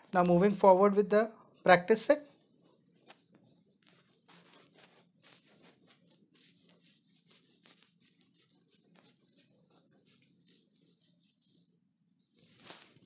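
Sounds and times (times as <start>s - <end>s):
duster wiping whiteboard: 2.6s - 13.0s.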